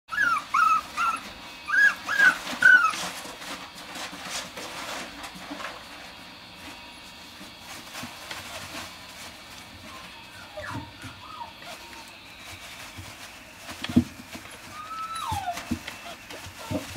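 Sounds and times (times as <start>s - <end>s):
puppy whimpering: 0.1s - 3.2s, 9.8s - 12.3s, 13.9s - 16.9s
soft rustling of paper bedding: 2.0s - 10.2s, 10.8s - 16.9s.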